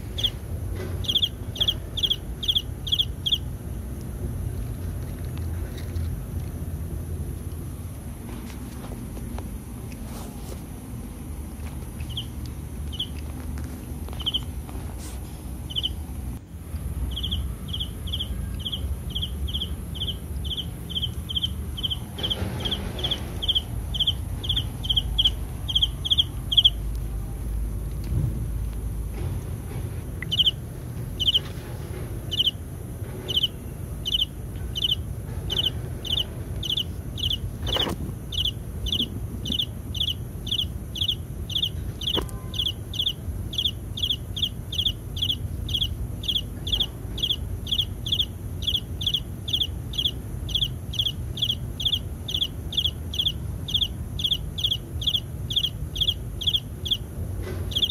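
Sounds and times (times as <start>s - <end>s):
animal chirping call: 0.2s - 0.4s, 1.0s - 3.5s, 17.1s - 26.8s, 31.2s - 31.5s, 33.3s - 57.1s, 57.7s - 57.9s.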